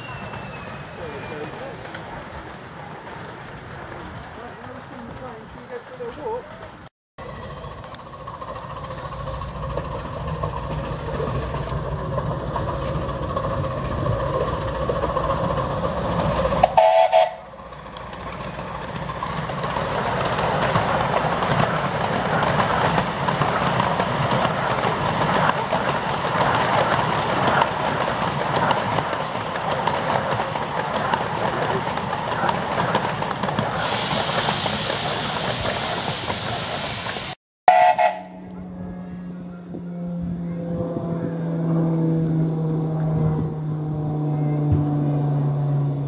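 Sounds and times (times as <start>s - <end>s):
carriages rolling over rails: 0.0s - 37.4s
miniature steam locomotive running: 0.0s - 38.3s
steam whistle blast: 16.6s - 17.4s, 37.7s - 38.5s.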